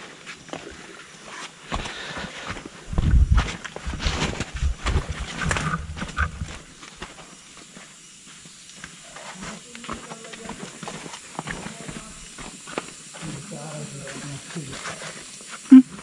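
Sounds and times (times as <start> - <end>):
footsteps on muddy path: 1.3 - 7.8.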